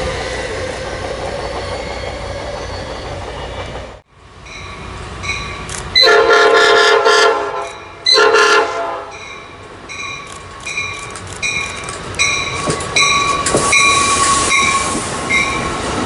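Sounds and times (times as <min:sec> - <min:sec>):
electric train rolling: 0:00.0 - 0:16.0
train horn blast: 0:06.0 - 0:09.3.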